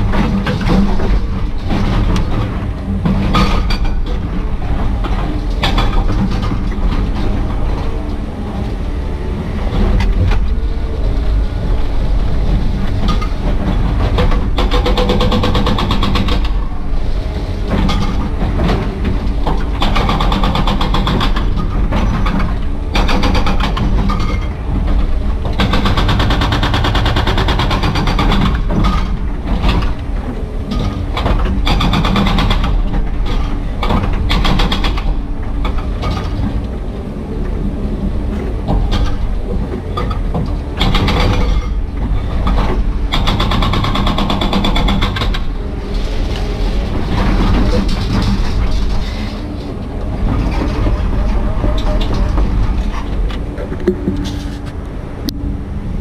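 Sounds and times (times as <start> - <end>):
diesel engine running: 0.0 - 56.0
hydraulic breaker hammering concrete: 25.6 - 30.0, 42.5 - 45.6.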